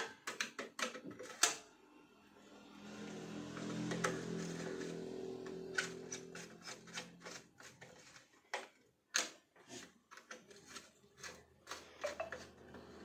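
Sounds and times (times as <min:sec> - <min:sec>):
screwdriver clicking and scraping: 0:03.5 - 0:13.0.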